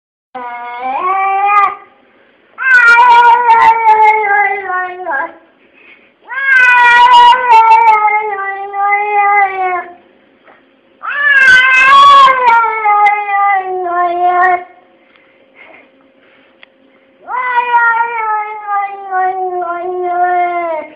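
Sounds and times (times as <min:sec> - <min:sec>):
cat yowling meows: 0:00.4 - 0:01.8, 0:02.6 - 0:05.4, 0:06.3 - 0:10.0, 0:11.0 - 0:14.7, 0:17.2 - 0:20.9.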